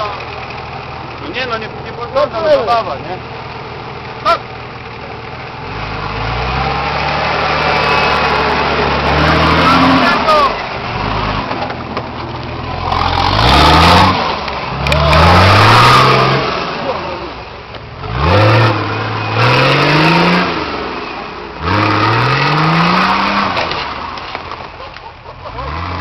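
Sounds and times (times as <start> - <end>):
truck engine revving hard: 5.5 - 24.6, 25.3 - 26.0.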